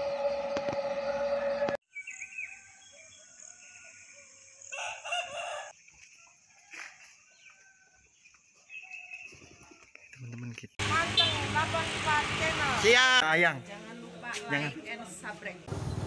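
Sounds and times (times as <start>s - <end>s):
high-pitched hum: 0.0s - 1.8s
rooster crowing: 2.5s - 8.1s.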